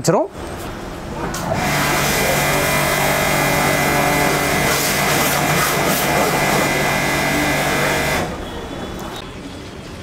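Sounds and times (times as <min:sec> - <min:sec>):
pressure washer motor humming: 0:00.6 - 0:08.5
water jet hissing: 0:00.6 - 0:08.9.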